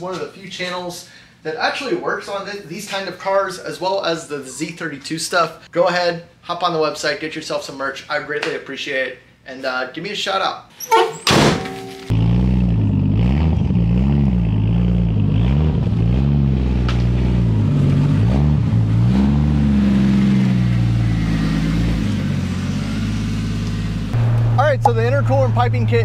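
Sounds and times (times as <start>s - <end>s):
car engine blipping: 23.6s - 26.0s.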